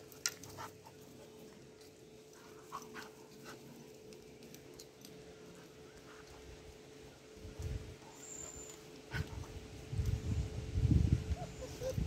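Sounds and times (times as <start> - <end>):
puppies whimpering: 11.3 - 12.0.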